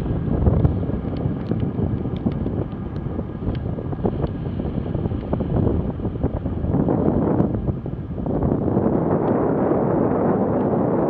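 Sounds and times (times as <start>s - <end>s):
wind buffeting microphone: 0.0s - 11.0s
small ticks: 1.2s - 4.4s.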